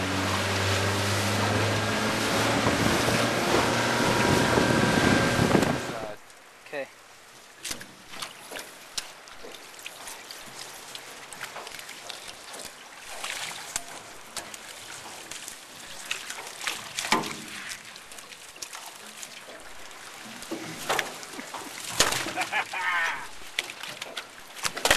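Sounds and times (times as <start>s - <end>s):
net pulled over boat edge: 0.0s - 6.2s, 7.6s - 24.9s
water trickling and dripping: 7.4s - 24.7s.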